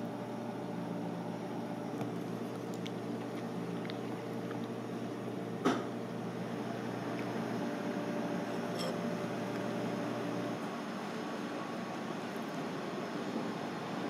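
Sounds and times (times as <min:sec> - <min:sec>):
low hum of room machinery: 0:00.0 - 0:14.0
metal spoon clinking on plate: 0:08.6 - 0:09.0.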